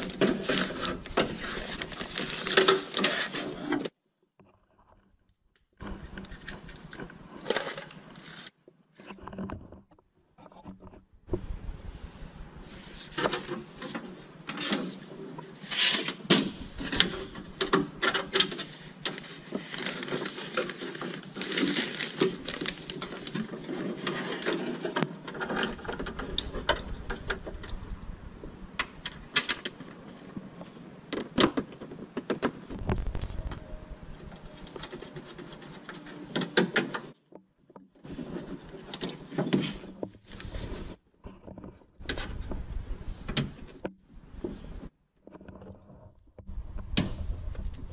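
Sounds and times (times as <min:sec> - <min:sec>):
clicks knocks and scrapes of metal: 0:13.1 - 0:27.8.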